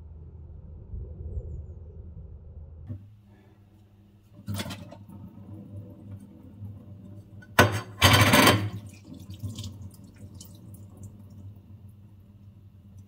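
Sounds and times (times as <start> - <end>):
water dripping and rinsing: 4.2 - 13.0
tap water rushing into sink: 4.4 - 11.4.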